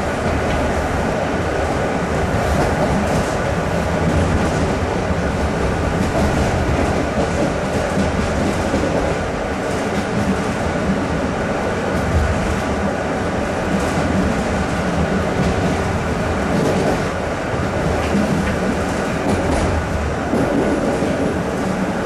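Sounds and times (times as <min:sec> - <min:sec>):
train wheels rumbling on rails: 0:00.0 - 0:22.0
wheels clickety-clack: 0:02.4 - 0:11.0, 0:16.5 - 0:17.2, 0:17.8 - 0:21.9.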